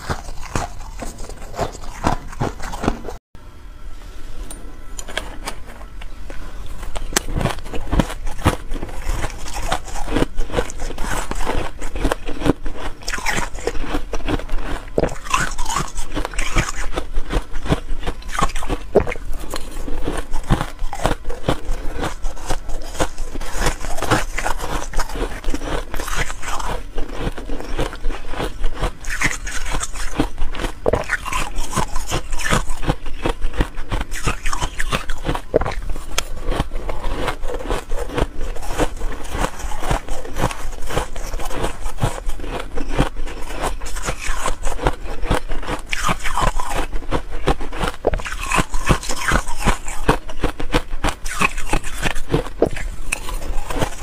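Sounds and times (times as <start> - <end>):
ice being chewed: 0.0 - 3.2, 5.0 - 54.0.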